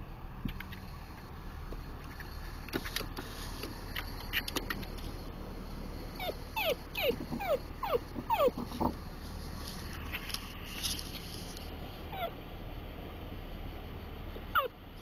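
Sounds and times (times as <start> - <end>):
dog whimpering: 6.2 - 8.7, 12.1 - 12.4, 14.5 - 14.7.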